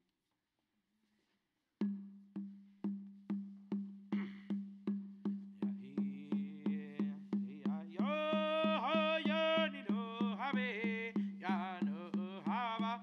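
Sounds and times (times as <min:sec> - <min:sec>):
steady percussion beat: 0:01.8 - 0:13.0
man singing: 0:05.6 - 0:13.0.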